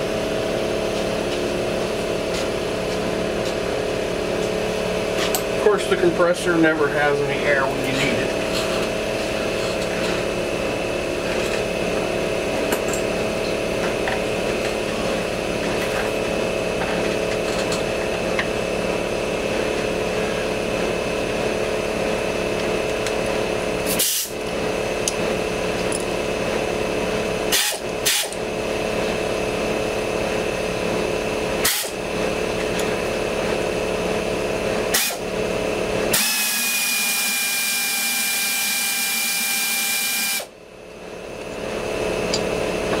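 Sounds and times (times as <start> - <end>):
air compressor running: 0.0 - 43.0
air ratchet whining: 27.5 - 28.4, 31.6 - 32.0, 34.9 - 35.2.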